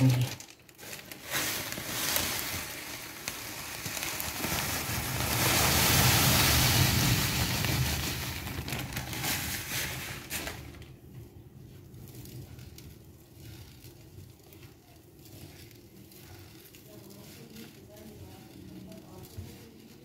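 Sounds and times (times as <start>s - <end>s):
sugar pouring onto plate: 1.8s - 9.7s.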